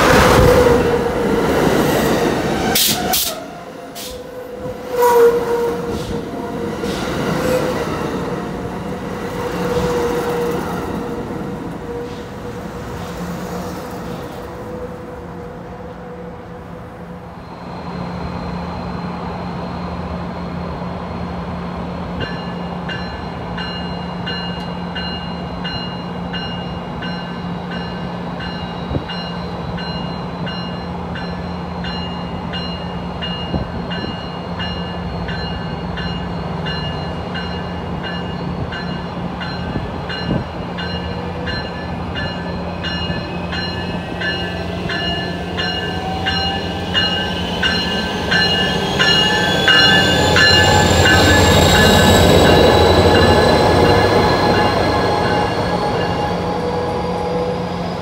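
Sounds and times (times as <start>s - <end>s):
train wheel squeal: 17.3s - 58.0s
train bell ringing: 22.2s - 58.0s
locomotive engine hum: 34.8s - 58.0s
rising whines: 42.6s - 58.0s.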